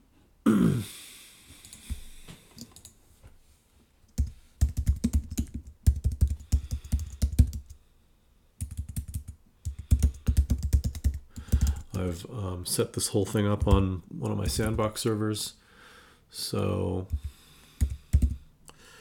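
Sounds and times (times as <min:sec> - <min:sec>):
computer keyboard typing: 0:04.2 - 0:07.8, 0:08.6 - 0:12.0, 0:13.6 - 0:13.8, 0:14.5 - 0:14.8, 0:17.1 - 0:18.4.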